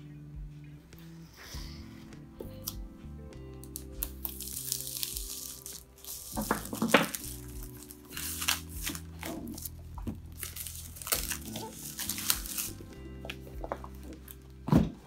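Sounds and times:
background music: 0.0s - 15.0s
plastic wrap crinkling and tearing: 3.6s - 14.6s.

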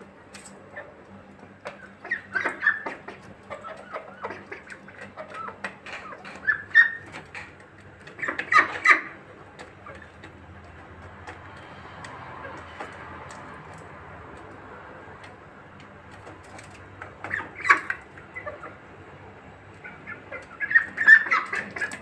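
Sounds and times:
young poultry calling: 1.6s - 10.3s, 17.1s - 18.8s, 19.7s - 22.0s.

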